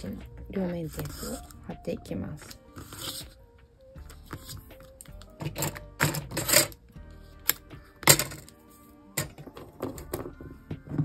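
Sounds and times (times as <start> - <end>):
soft background music: 0.0 - 11.0
tape crackling and clicking: 4.0 - 6.8.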